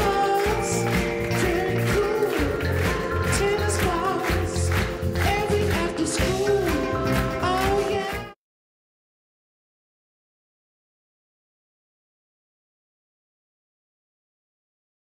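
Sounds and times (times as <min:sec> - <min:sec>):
upbeat pop music: 0:00.0 - 0:08.4.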